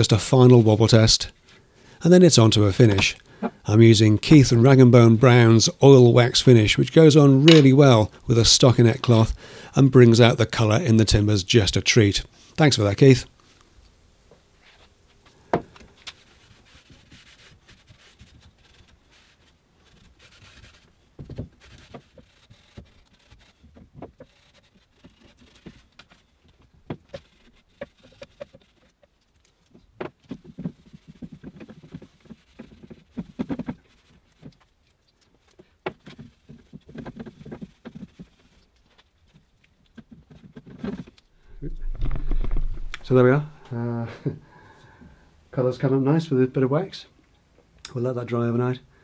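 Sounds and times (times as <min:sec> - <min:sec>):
cloth rubbing wood: 0:16.1 - 0:34.8, 0:35.5 - 0:43.3.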